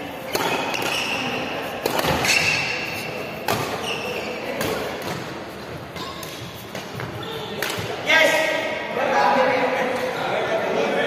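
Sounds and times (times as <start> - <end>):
shoe squeaks: 0.2 - 4.6, 5.9 - 7.5
rackets hitting shuttlecock: 0.2 - 5.3, 5.9 - 8.0.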